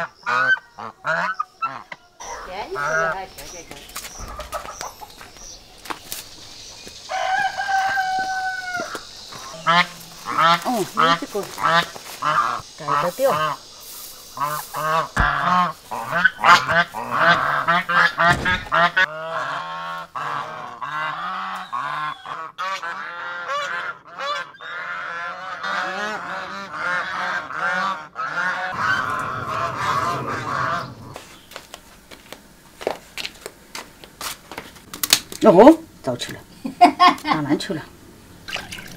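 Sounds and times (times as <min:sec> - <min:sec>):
ducks quacking: 0:00.0 - 0:05.3, 0:07.1 - 0:31.2.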